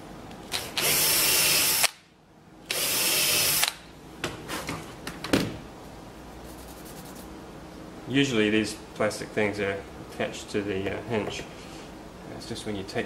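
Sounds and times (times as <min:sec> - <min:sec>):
power drill boring into wood: 0:00.7 - 0:01.9, 0:02.7 - 0:03.7.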